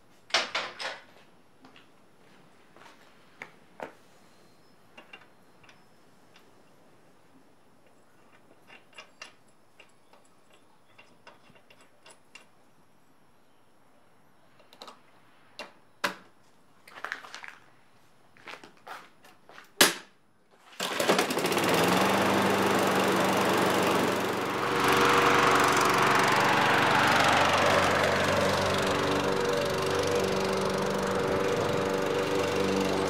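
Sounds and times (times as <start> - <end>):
lawn mower engine running: 20.7 - 33.0.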